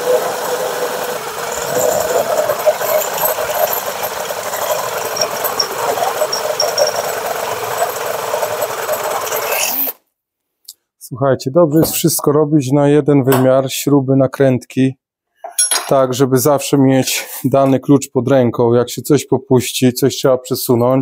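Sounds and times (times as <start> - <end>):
electric drill boring steel: 0.0 - 10.0.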